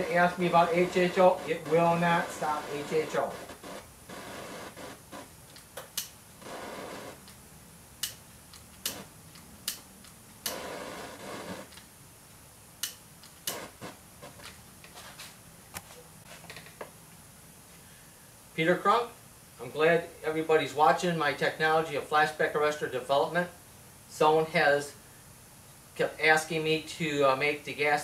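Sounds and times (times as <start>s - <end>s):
hiss bursts: 0.0s - 5.3s, 10.4s - 11.7s, 13.4s - 14.0s
small flame burning: 0.0s - 9.8s, 10.4s - 11.9s, 12.8s - 14.6s
flame clicks and pops: 8.0s - 10.8s, 12.8s - 14.0s.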